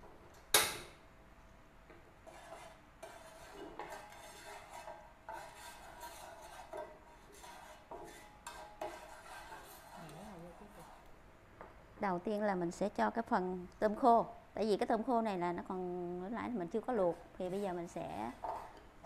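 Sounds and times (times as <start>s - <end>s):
spatula scraping frying pan: 2.2s - 11.1s, 17.4s - 19.0s.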